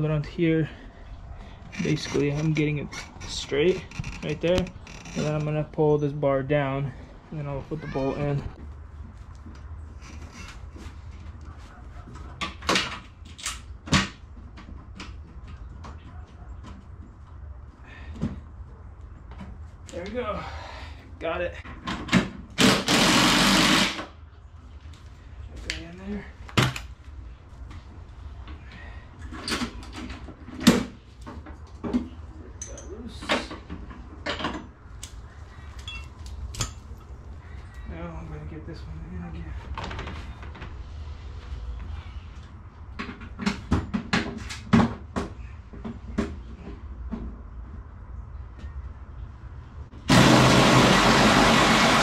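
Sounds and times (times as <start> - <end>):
metal tools knocking and clanking: 32.6 - 33.6.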